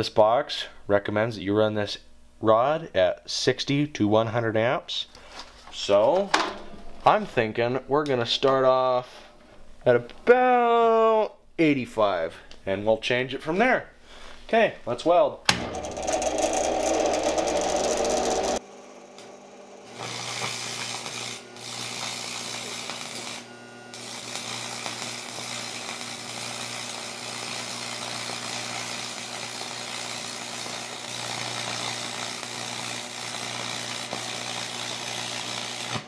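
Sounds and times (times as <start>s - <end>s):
welding arc crackling: 15.8s - 18.6s, 19.9s - 36.0s.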